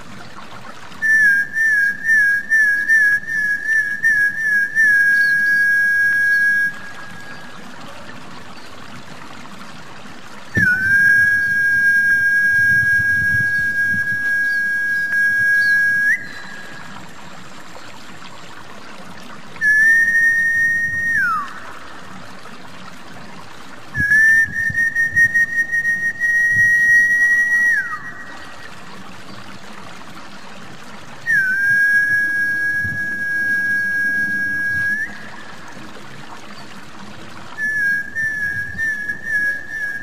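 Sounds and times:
faint trickle of water: 0.0 - 40.0
high-pitched whistled lure call: 1.0 - 7.6, 10.6 - 17.0, 19.6 - 21.7, 24.0 - 28.7, 31.3 - 35.6, 37.6 - 40.0.

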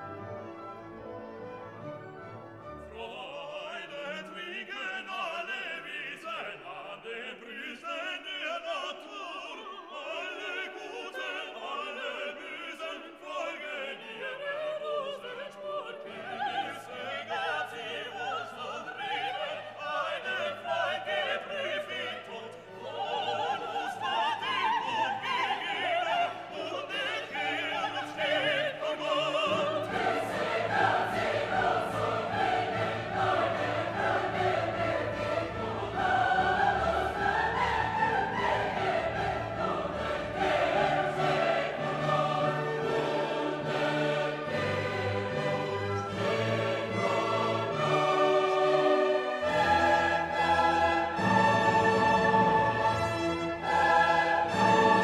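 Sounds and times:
orchestra playing: 0.0 - 4.1, 28.6 - 55.0
operatic singing: 2.8 - 55.0.

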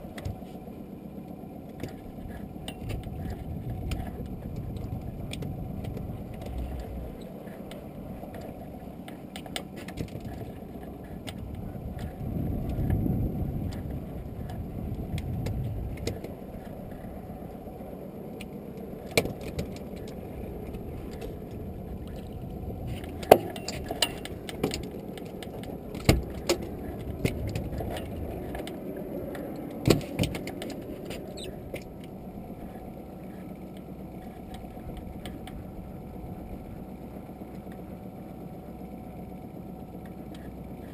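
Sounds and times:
wind and sea rushing: 10.3 - 32.9
sharp metallic clicks and knocks: 18.4 - 32.1.

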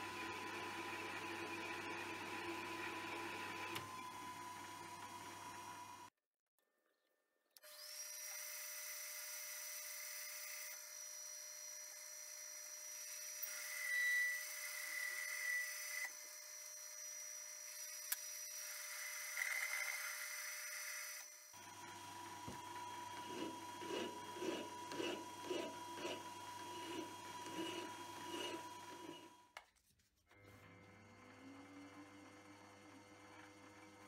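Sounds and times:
metal lathe motor whine: 10.0 - 29.4
cutting tool squeals: 10.5 - 21.6, 23.2 - 29.4.

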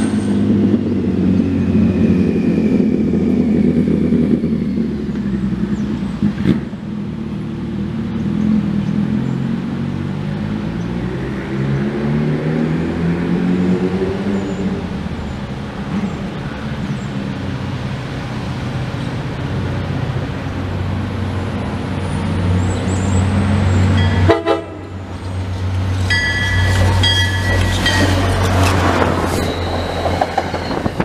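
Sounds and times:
diesel locomotive engine drone: 0.0 - 31.0
train horn blasts: 24.0 - 25.0.

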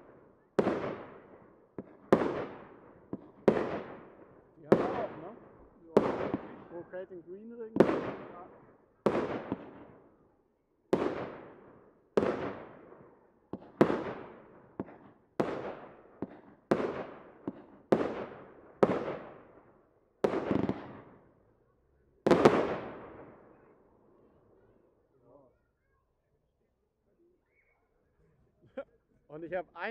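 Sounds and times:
firework bangs: 0.0 - 10.0, 10.9 - 19.6, 20.2 - 21.3, 22.3 - 23.6
small firework pops: 1.8 - 3.9, 9.1 - 10.0, 13.5 - 19.4, 20.3 - 21.2.

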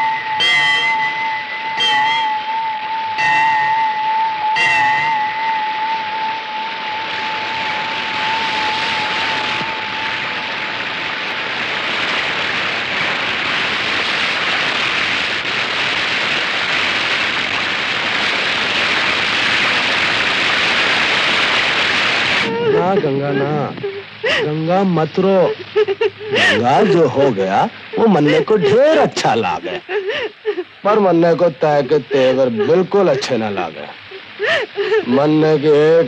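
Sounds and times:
held wavering music note: 0.0 - 10.8
rain pouring: 0.0 - 36.0.

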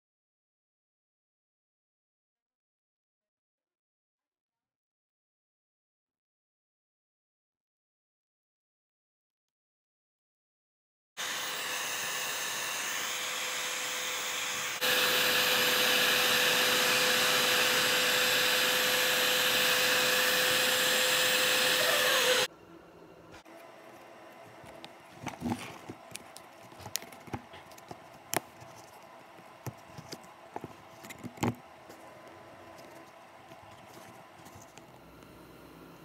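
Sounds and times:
heat gun blowing with whine: 11.2 - 22.5.

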